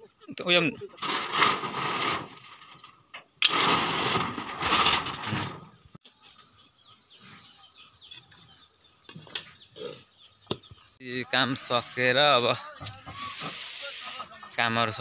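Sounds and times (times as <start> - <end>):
metal roofing sheet scraping and rattling: 0.9 - 5.8.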